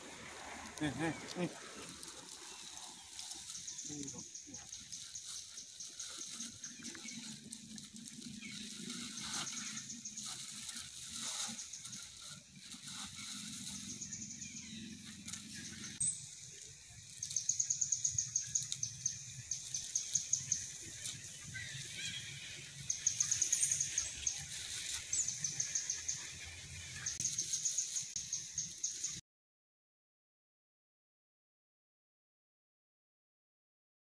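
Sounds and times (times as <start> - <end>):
high-pitched pulsing chirping: 2.8 - 12.2.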